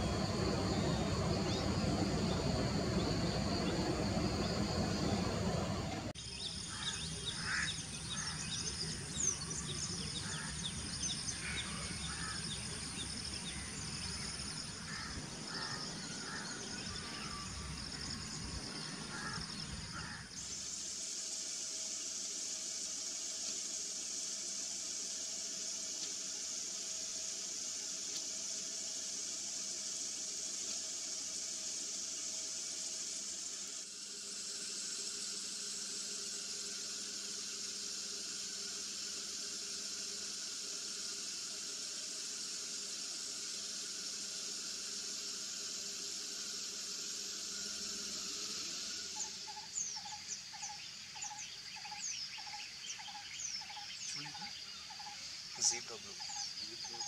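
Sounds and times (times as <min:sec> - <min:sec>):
high insect drone: 0:00.0 - 0:57.0
hissing insect chorus: 0:00.0 - 0:57.0
small birds chirping: 0:49.2 - 0:57.0.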